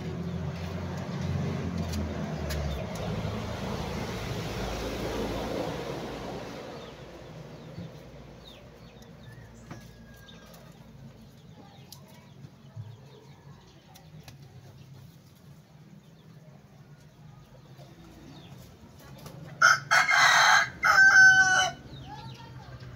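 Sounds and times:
road vehicle passing: 0.0 - 22.9
chicken calls: 19.5 - 22.4.

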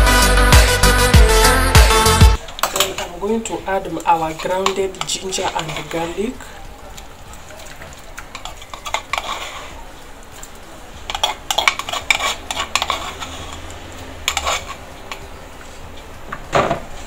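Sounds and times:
metal spoon scraping a mortar: 4.0 - 6.4, 8.2 - 9.8, 11.0 - 15.2.

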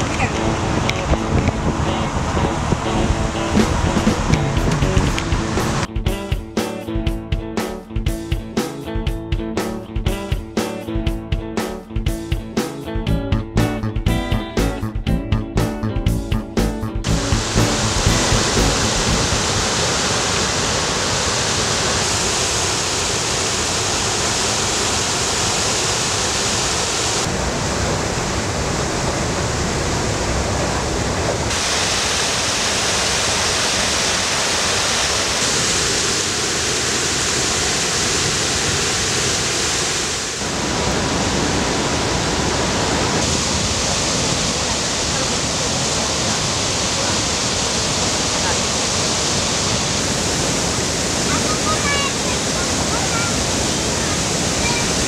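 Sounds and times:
river water rushing over weirs: 0.0 - 5.9, 17.0 - 55.0.

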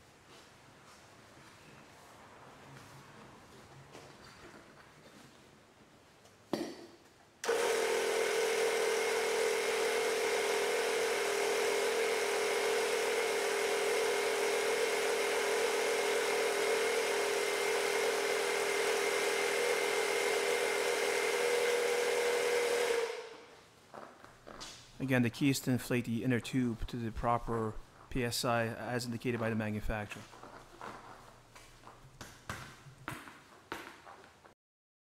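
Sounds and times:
electric tire inflator pumping: 7.4 - 23.5.

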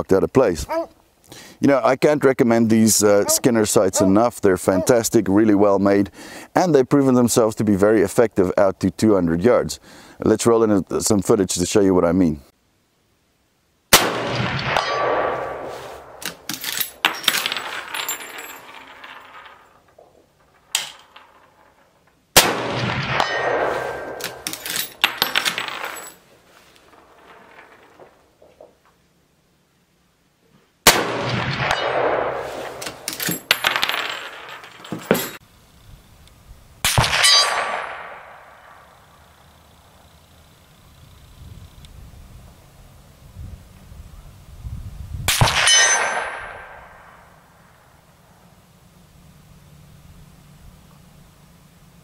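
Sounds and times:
rifle shots echoing: 13.9 - 18.3, 22.4 - 26.1, 30.8 - 34.6, 36.9 - 38.8
metallic clicks and clangs: 16.2 - 22.2, 23.1 - 26.2, 32.6 - 35.4.

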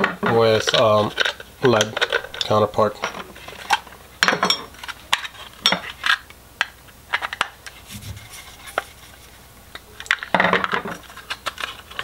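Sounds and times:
plastic and metal parts clattering: 0.0 - 6.2, 10.1 - 12.0.

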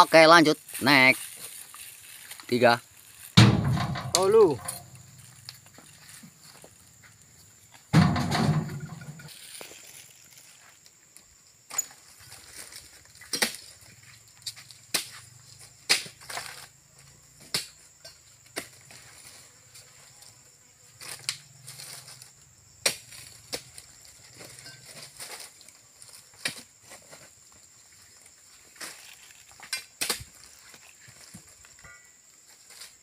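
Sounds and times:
fruit bunches thumping into wire basket: 3.4 - 5.0, 8.0 - 9.2.

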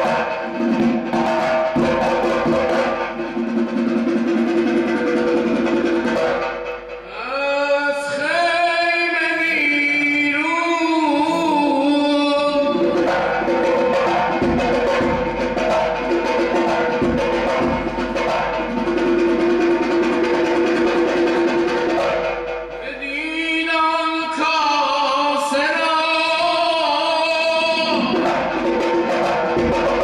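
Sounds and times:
drum rhythm: 0.0 - 24.4, 25.1 - 30.0
man chanting gliding phrase: 7.1 - 13.5, 22.8 - 28.2.

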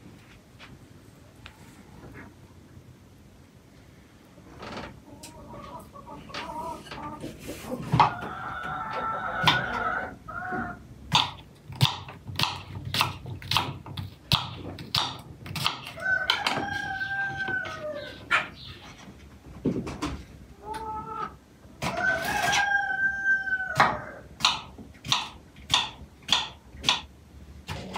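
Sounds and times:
rooster crowing: 16.0 - 18.2, 21.9 - 24.3.

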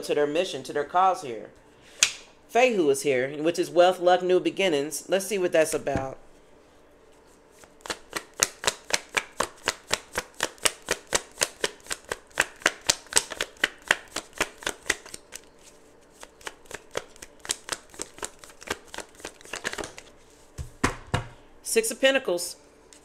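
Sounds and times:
cards being shuffled: 7.5 - 21.0.

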